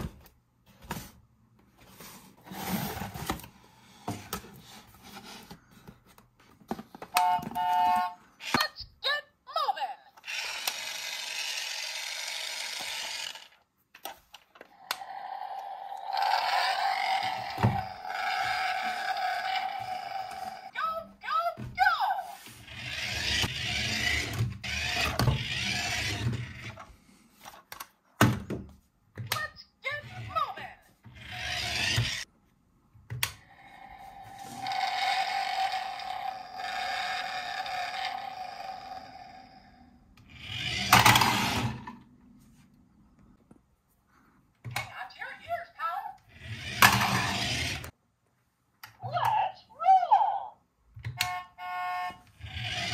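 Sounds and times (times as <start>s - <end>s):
toy car motor whirring: 10.2s - 13.6s, 14.8s - 20.8s, 22.5s - 26.8s, 29.9s - 32.3s, 33.5s - 41.9s, 46.3s - 48.0s, 52.3s - 52.9s.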